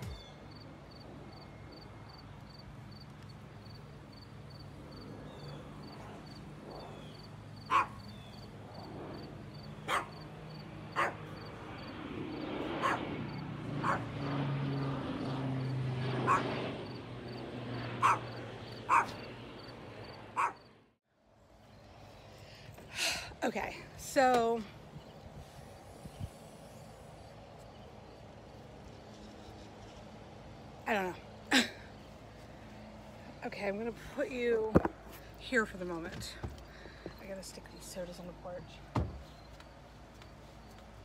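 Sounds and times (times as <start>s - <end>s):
dog barking: 7.7s - 8.0s, 9.9s - 10.2s, 11.0s - 11.2s, 12.8s - 13.0s, 13.8s - 14.1s, 16.3s - 16.5s, 18.0s - 18.3s, 18.9s - 19.2s, 20.4s - 20.6s.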